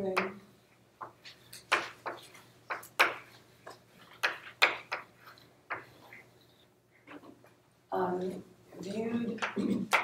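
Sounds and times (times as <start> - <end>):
chalk tapping on blackboard: 1.0 - 6.0.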